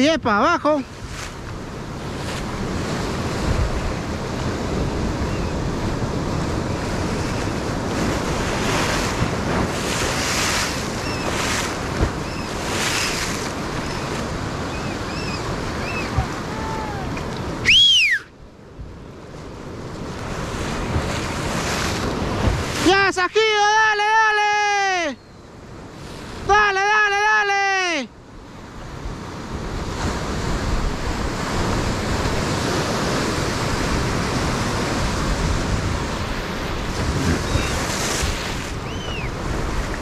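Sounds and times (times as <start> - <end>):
surf breaking on beach: 0.0 - 25.2, 25.8 - 40.0
wind buffeting microphone: 0.8 - 22.9, 28.9 - 40.0.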